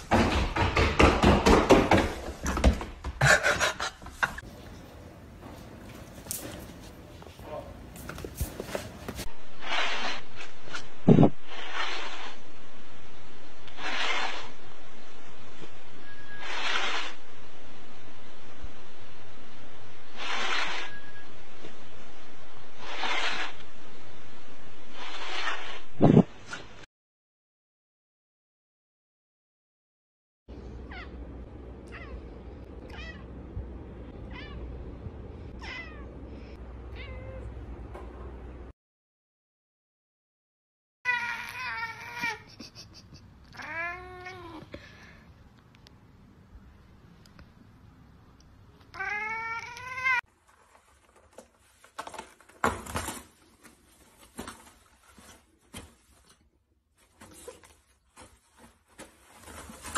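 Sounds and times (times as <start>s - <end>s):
cat meowing: 32.9s - 33.3s, 35.6s - 36.1s, 36.9s - 37.5s, 43.5s - 44.6s, 48.9s - 50.2s
paper rustling: 50.3s - 59.9s.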